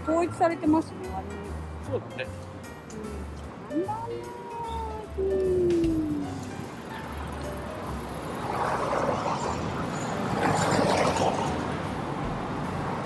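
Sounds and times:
car passing: 0:05.0 - 0:13.0.

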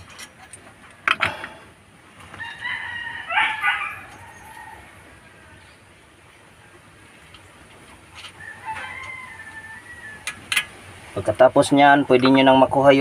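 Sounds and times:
rooster crowing: 0:02.3 - 0:05.6, 0:08.3 - 0:10.5.

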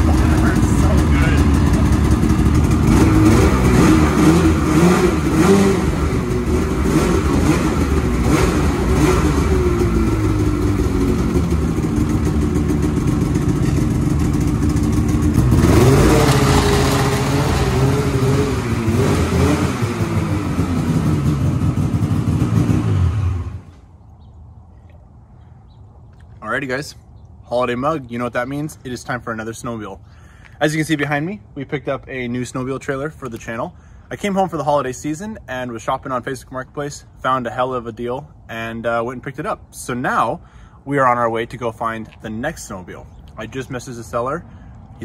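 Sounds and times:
snowmobile engine revving: 0:00.0 - 0:23.6.

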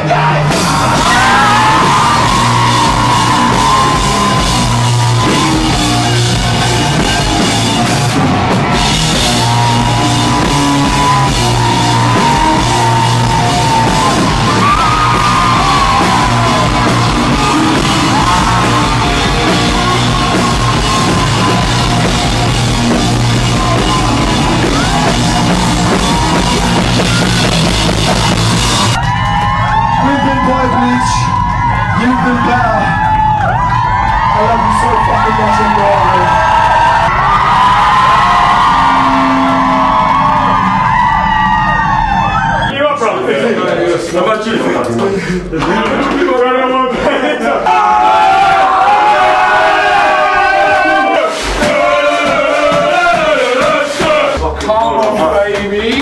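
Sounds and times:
rock band playing live: 0:00.0 - 0:42.7.

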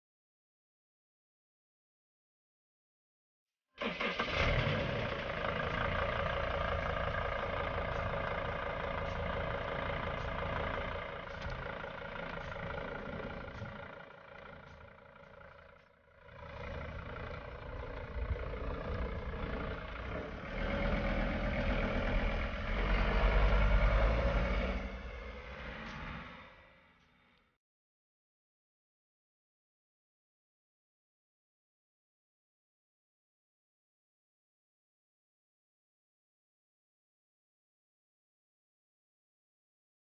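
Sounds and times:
diesel engine idling: 0:03.8 - 0:27.0.

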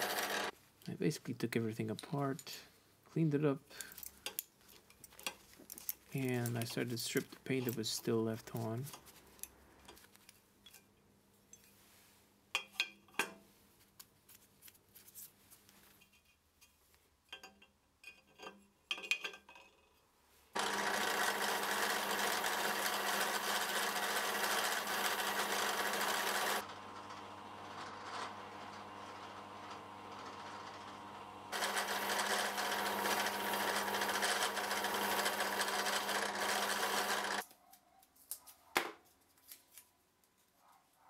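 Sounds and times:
drill press grinding hiss: 0:00.0 - 0:00.5, 0:20.6 - 0:37.4.

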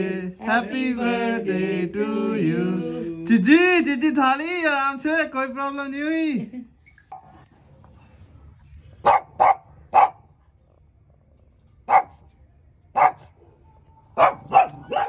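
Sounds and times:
dog barking: 0:09.0 - 0:10.4, 0:11.9 - 0:12.3, 0:13.0 - 0:15.0.

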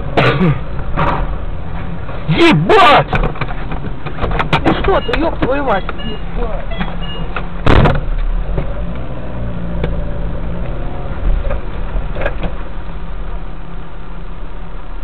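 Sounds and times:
car engine rumble: 0:00.0 - 0:15.0
road noise: 0:00.0 - 0:15.0.

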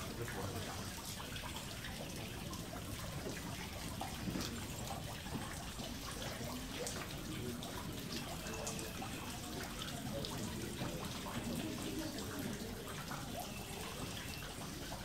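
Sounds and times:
water trickling: 0:00.0 - 0:15.0.

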